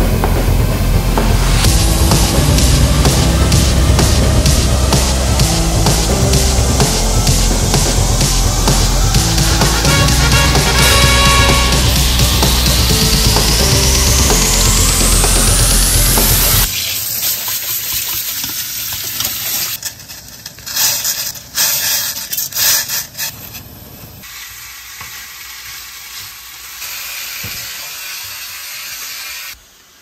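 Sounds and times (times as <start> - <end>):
loud rock music: 0.0 - 16.7
pot sounds: 1.5 - 23.2
food sizzling in frying pan: 16.7 - 19.8, 24.2 - 30.0.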